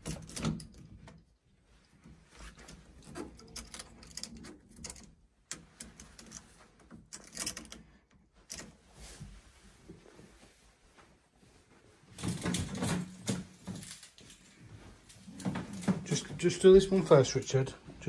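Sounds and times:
clicks and knocks of fittings: 0:00.0 - 0:01.3, 0:02.4 - 0:08.8
rustling: 0:01.0 - 0:18.0.

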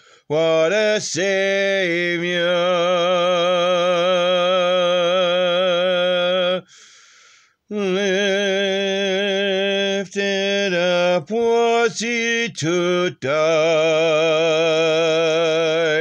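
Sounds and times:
quick breath: 0:00.0 - 0:00.3, 0:06.7 - 0:07.7
man singing a hymn: 0:00.2 - 0:06.8, 0:07.7 - 0:16.0.

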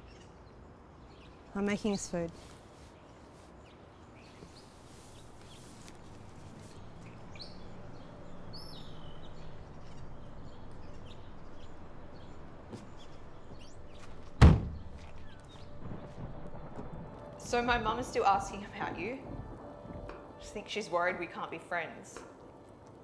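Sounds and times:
birds chirping: 0:00.0 - 0:21.0
car door slamming: 0:14.3 - 0:15.0.

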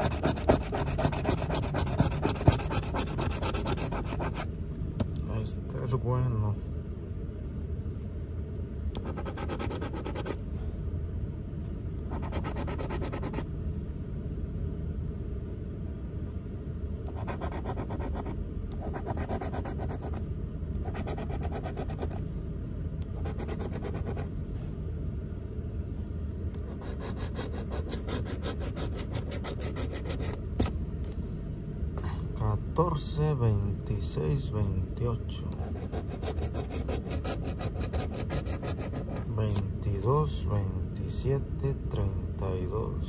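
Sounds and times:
coin scratching ticket: 0:00.0 - 0:04.4, 0:09.0 - 0:10.4, 0:12.1 - 0:13.4, 0:17.1 - 0:20.2, 0:20.9 - 0:22.2, 0:23.2 - 0:24.3, 0:26.7 - 0:30.4, 0:35.6 - 0:39.3.

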